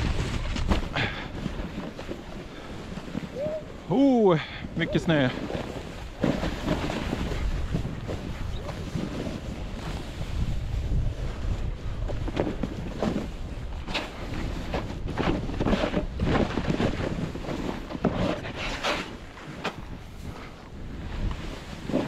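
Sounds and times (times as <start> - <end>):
skis scraping through snow: 0.0 - 22.0
wind buffeting microphone: 0.0 - 22.0.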